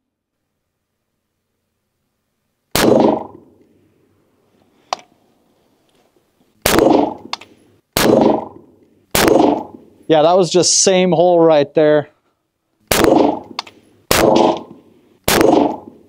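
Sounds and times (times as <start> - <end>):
rifle shots: 2.7 - 3.5, 6.6 - 9.9, 12.9 - 16.0
sharp click: 7.2 - 7.5, 13.4 - 13.8.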